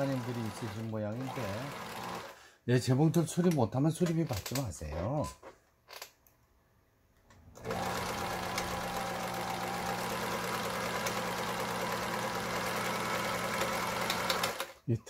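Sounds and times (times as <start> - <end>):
sewing machine running: 0.0 - 2.4, 7.6 - 14.8.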